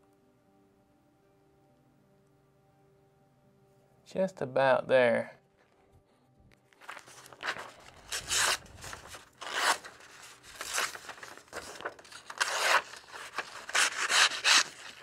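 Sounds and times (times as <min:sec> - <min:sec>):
knife slicing paper: 0:06.9 - 0:15.0.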